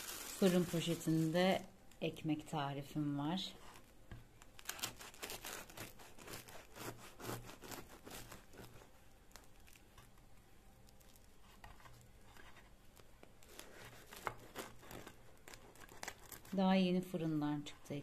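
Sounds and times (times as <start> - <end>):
knife sawing through bread crust: 4.7 - 8.9, 13.5 - 16.6.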